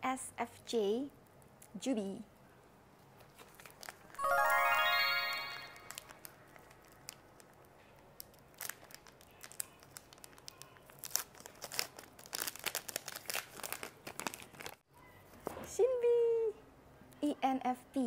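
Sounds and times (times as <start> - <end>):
wrapper crinkling and tearing: 3.2 - 4.3, 5.6 - 14.8
short chime sound effect: 4.2 - 6.0.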